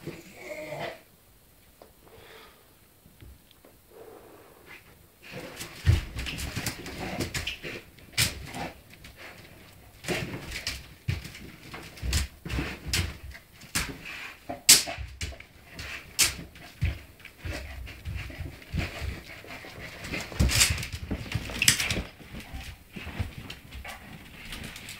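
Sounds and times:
dog scratching at cushion: 5.2s - 24.9s.

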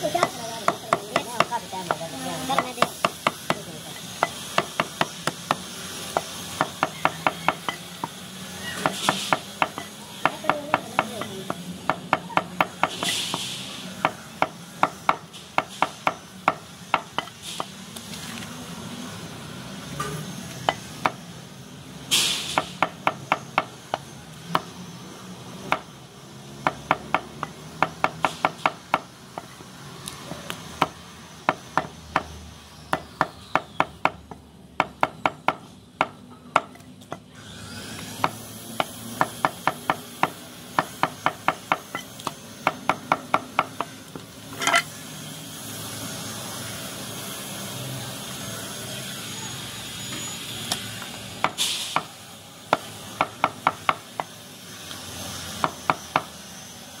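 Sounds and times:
cleaver chopping meat on wood: 0.2s - 8.2s, 8.8s - 13.0s, 14.0s - 17.7s, 20.7s - 21.2s, 22.6s - 24.7s, 26.6s - 29.5s, 30.8s - 37.2s, 38.0s - 43.9s.

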